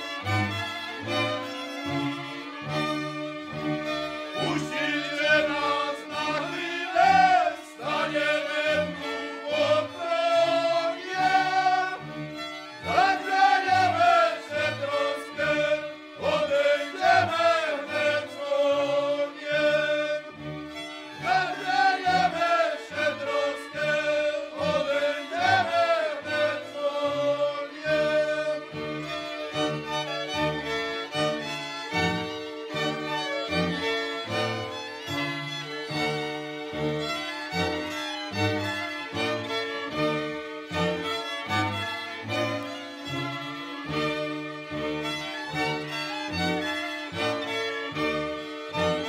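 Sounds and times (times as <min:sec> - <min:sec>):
fiddles playing lively tune: 0:00.0 - 0:49.0
men singing: 0:04.4 - 0:12.0, 0:12.8 - 0:20.4, 0:21.2 - 0:28.8.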